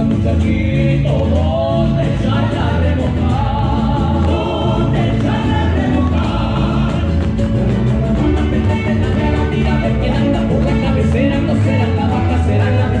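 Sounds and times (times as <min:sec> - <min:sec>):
steady bass rhythm: 0:00.0 - 0:13.0
strummed guitars: 0:00.0 - 0:13.0.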